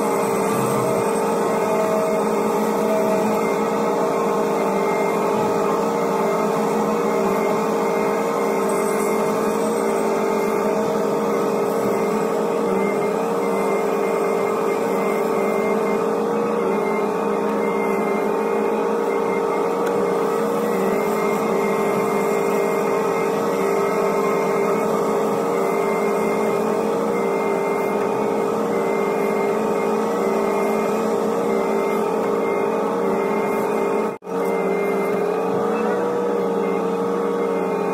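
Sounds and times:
excavator engine hum and whine: 0.0s - 37.9s.

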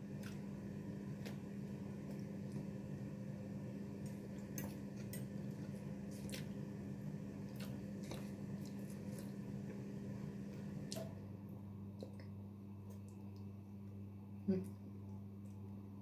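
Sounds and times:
steady low hum: 0.0s - 16.0s
chewing: 7.4s - 9.8s.

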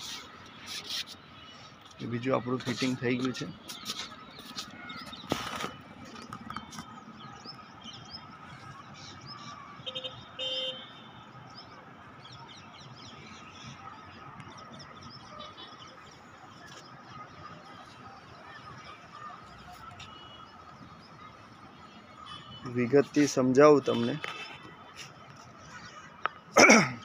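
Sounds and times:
vehicle horn beeping: 9.8s - 11.2s.

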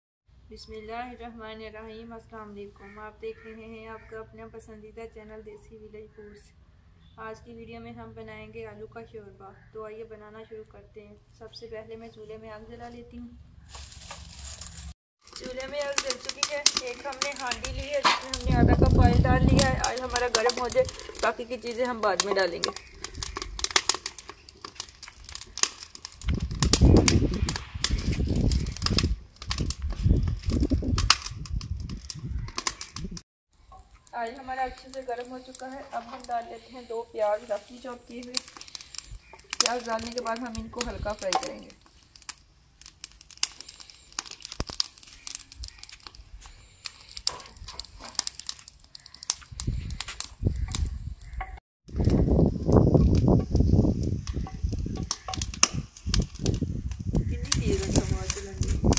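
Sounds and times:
twigs crackling and snapping: 13.6s - 58.9s.

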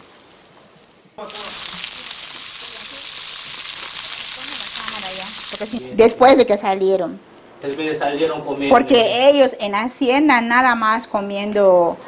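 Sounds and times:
meat sizzling on a grill: 0.0s - 5.9s.

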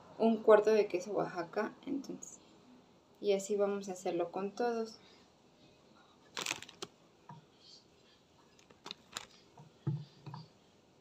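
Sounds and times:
hands rustling: 6.3s - 6.9s, 8.4s - 9.4s.

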